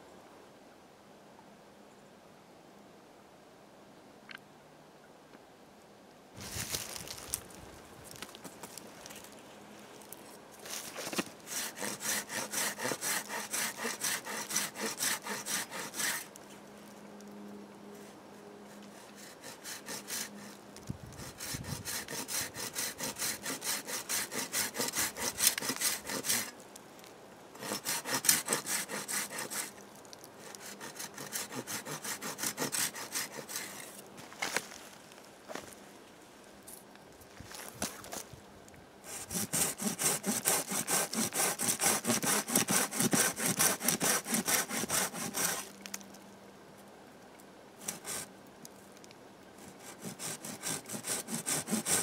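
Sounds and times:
hand saw cutting wood: 0:10.8 - 0:16.4, 0:18.7 - 0:20.6, 0:21.2 - 0:26.6, 0:27.6 - 0:29.8, 0:30.4 - 0:34.0, 0:39.1 - 0:45.8, 0:47.8 - 0:48.3, 0:49.6 - 0:52.0.

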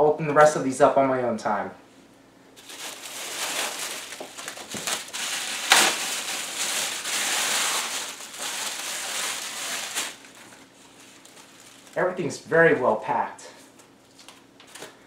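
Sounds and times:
plastic bag crinkling and rustling: 0:02.6 - 0:12.3.

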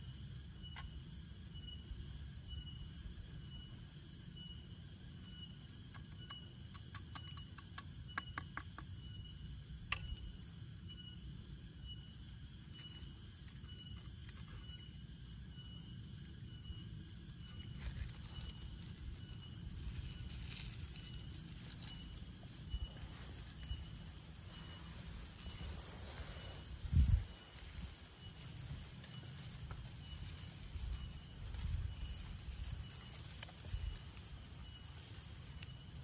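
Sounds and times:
forest insects chorus: 0:00.0 - 0:36.0
rustling of dry shavings: 0:17.4 - 0:36.0
thin high chirp: 0:17.5 - 0:36.0.

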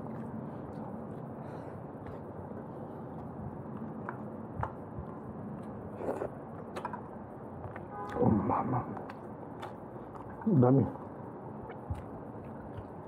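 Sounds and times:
person chewing food: 0:00.0 - 0:13.0
mouth clicks and smacks: 0:03.1 - 0:13.0.

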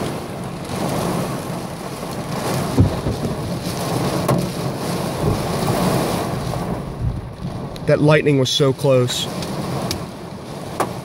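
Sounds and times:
heavy rain and hail: 0:00.0 - 0:11.0
close thunder crack: 0:02.3 - 0:08.2.

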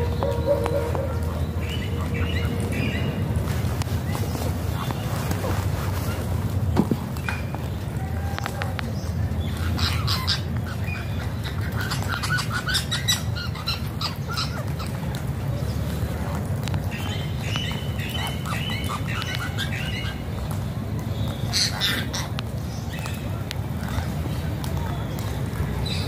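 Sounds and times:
parakeets squawking: 0:09.6 - 0:15.0, 0:17.6 - 0:20.3, 0:21.5 - 0:22.9.

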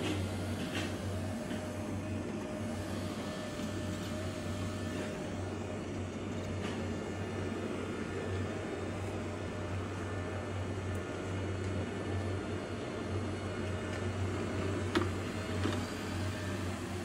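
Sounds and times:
robot vacuum whirring: 0:00.0 - 0:07.8, 0:14.9 - 0:17.0.

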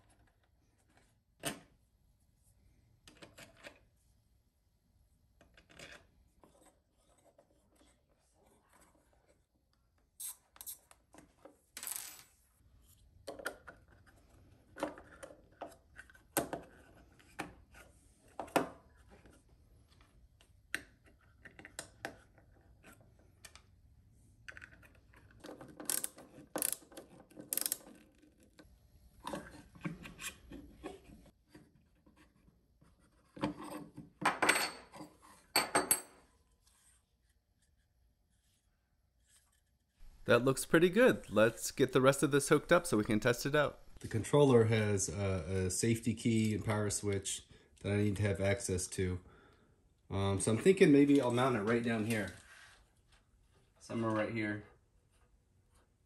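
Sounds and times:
small parts clicking and tapping: 0:24.5 - 0:28.6.

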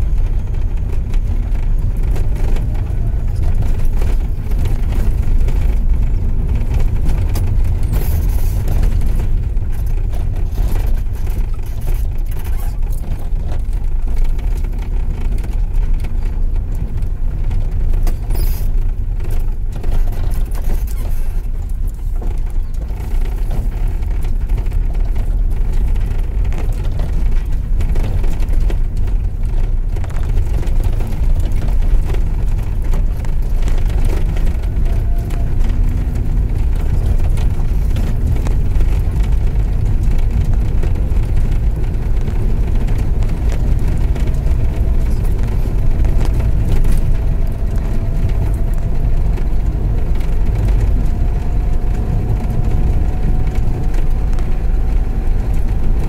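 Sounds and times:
tyres and engine rumble: 0:00.0 - 0:56.0.

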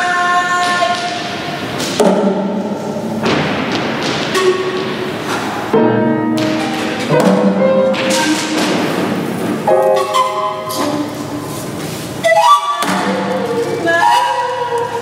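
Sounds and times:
scattered thumps: 0:01.8 - 0:11.2
held pitched notes: 0:04.3 - 0:15.0.

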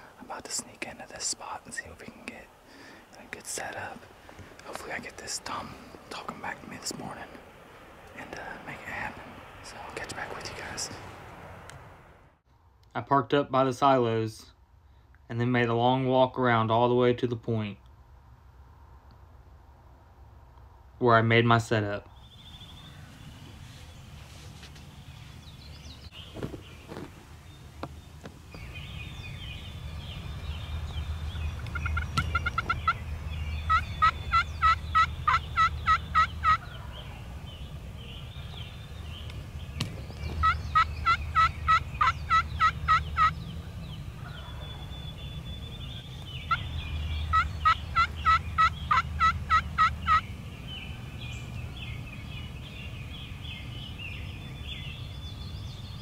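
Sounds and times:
turkey yelping: 0:31.6 - 0:37.2, 0:40.4 - 0:43.4, 0:46.4 - 0:50.3.

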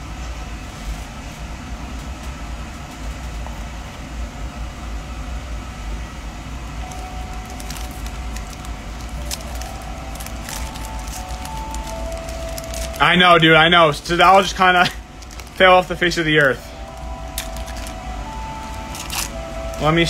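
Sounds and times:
steady low hum: 0:00.0 - 0:20.0
hands handling card packs: 0:06.9 - 0:13.5, 0:14.3 - 0:20.0
foil wrapper crinkling: 0:06.9 - 0:20.0.

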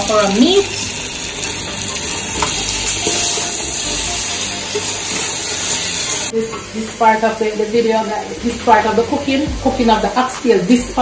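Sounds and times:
meat sizzling in a pot: 0:00.0 - 0:11.0.

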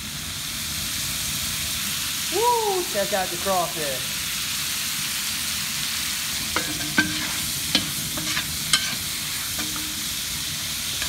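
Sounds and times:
sausage sizzling in a pot: 0:00.0 - 0:11.0
paddle scraping and clanking on pot: 0:06.5 - 0:10.2.

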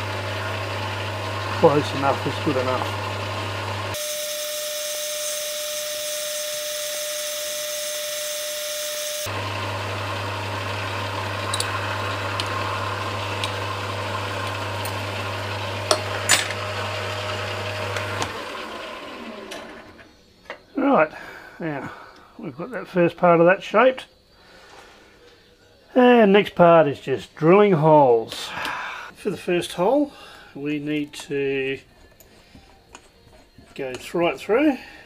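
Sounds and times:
metal lathe cutting aluminium: 0:00.0 - 0:20.0
lathe winding down: 0:00.0 - 0:20.2.

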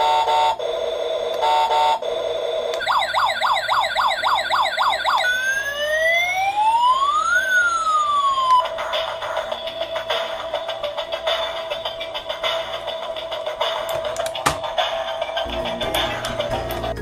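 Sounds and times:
toy siren yelp and wail: 0:02.8 - 0:08.7.

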